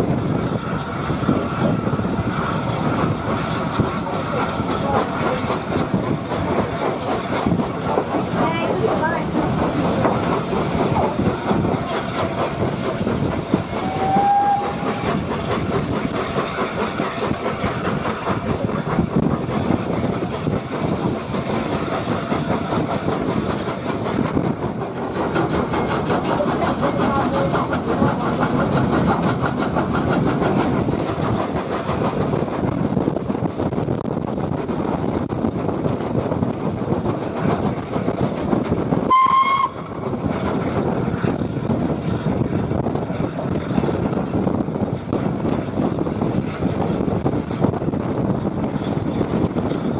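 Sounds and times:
steam locomotive running: 0:00.0 - 0:49.9
wind: 0:00.0 - 0:49.9
steam whistle blast: 0:13.8 - 0:15.0, 0:39.1 - 0:39.9.

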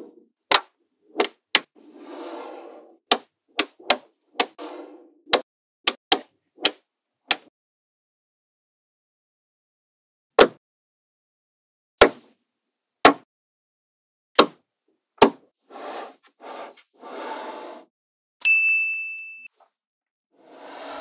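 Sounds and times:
bright ringing ding: 0:18.4 - 0:19.5.

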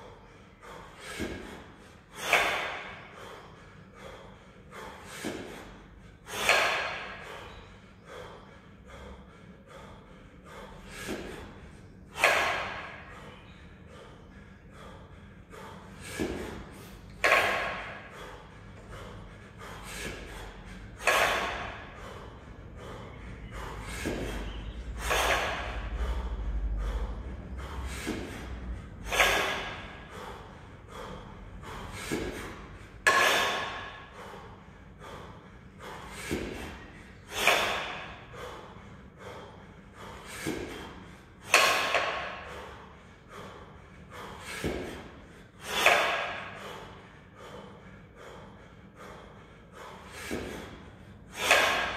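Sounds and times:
person breathing heavily: 0:00.0 - 0:51.9
sharp exhales: 0:00.0 - 0:51.9.

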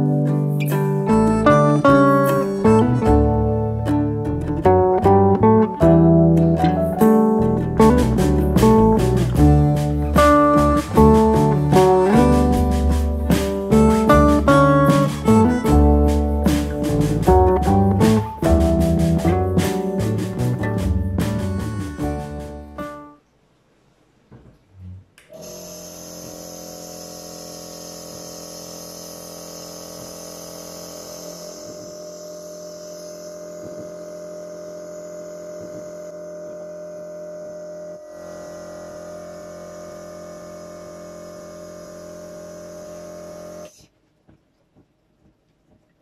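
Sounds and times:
compressor nebulizer humming: 0:25.2 - 0:43.9.

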